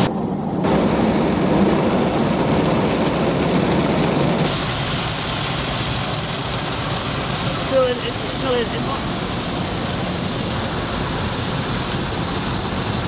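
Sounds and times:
car wash spraying water: 0:00.0 - 0:13.0.

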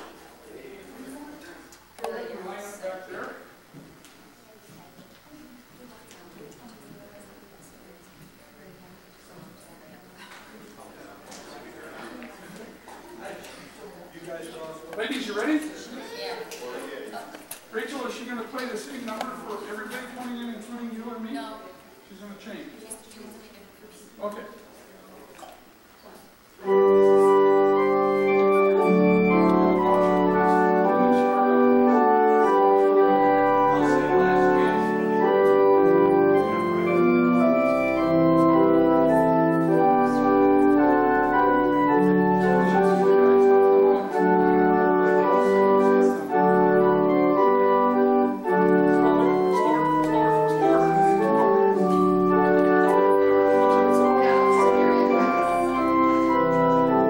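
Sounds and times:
organ playing slow chords: 0:26.6 - 0:57.0.

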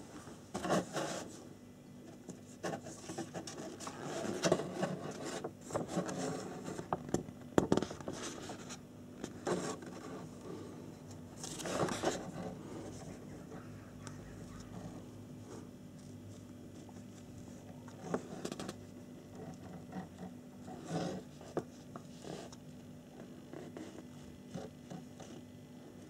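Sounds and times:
paper rustling: 0:11.4 - 0:14.9.

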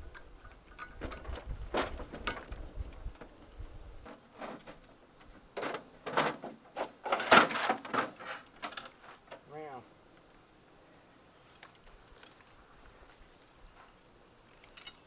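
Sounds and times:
wires and parts clattering: 0:05.6 - 0:09.4.

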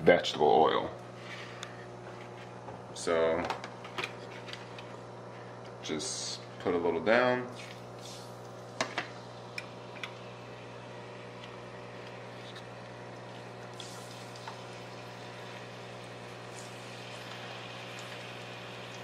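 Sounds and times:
steady low hum: 0:00.0 - 0:19.0
fish sizzling in oil: 0:13.8 - 0:19.0.

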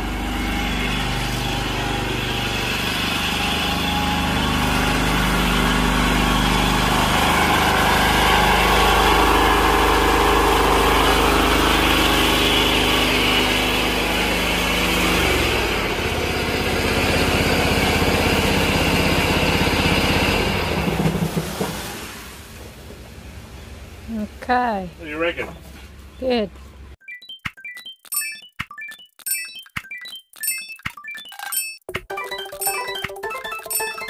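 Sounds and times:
small engine running: 0:00.0 - 0:22.2.

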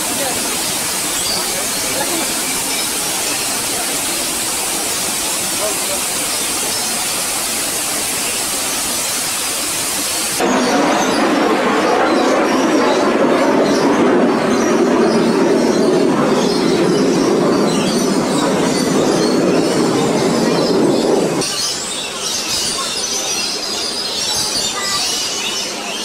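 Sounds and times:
monorail car rumbling: 0:00.0 - 0:07.0, 0:10.4 - 0:21.5
faint high bird chirps: 0:12.1 - 0:26.0.

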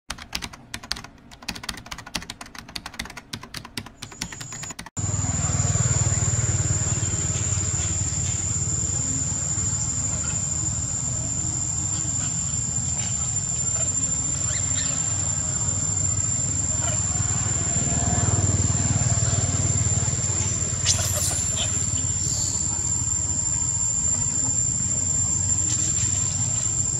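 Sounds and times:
fast run of clicks: 0:00.1 - 0:04.9
high-pitched whine: 0:05.0 - 0:26.9.

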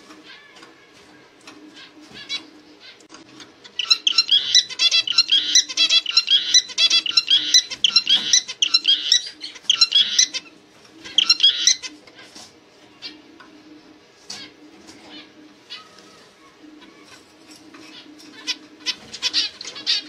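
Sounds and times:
finch chirping song: 0:03.7 - 0:10.5, 0:11.1 - 0:11.9.

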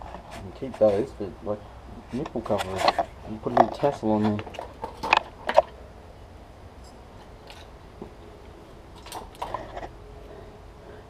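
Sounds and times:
low background hum: 0:00.0 - 0:11.0
light clicks and rustles: 0:02.1 - 0:05.8.

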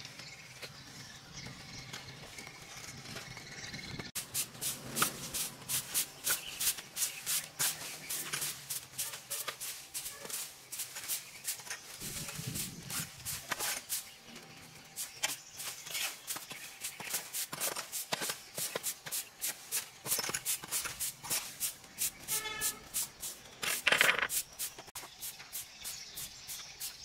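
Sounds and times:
dry leaves rustling and crackling: 0:04.2 - 0:23.4.

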